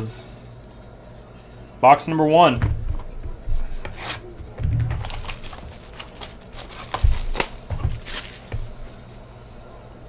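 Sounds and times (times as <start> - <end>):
packaging crinkling and tearing: 4.9 - 8.8
dull thumps of boxes: 6.9 - 8.8.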